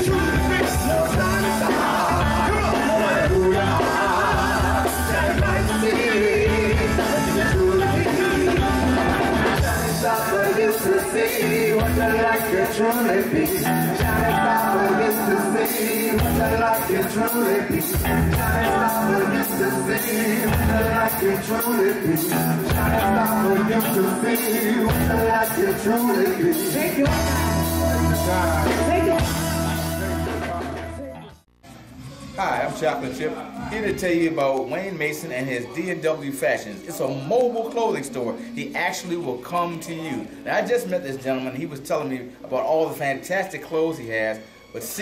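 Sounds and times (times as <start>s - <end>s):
live soul band: 0.0s - 31.3s
person singing: 0.0s - 31.4s.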